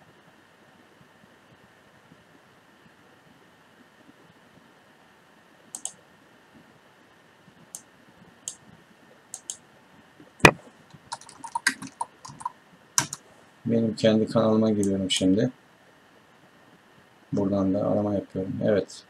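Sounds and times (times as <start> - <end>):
computer mouse clicking: 5.7 - 6.0, 9.3 - 9.6, 11.0 - 13.2
keyboard typing: 5.8 - 6.0, 9.4 - 9.6, 10.9 - 13.2.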